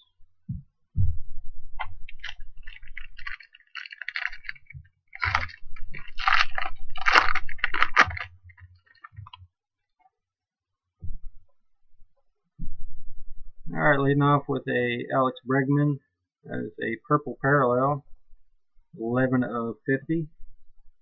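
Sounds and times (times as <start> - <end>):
foil wrapper tearing and crinkling: 2.0 - 9.4.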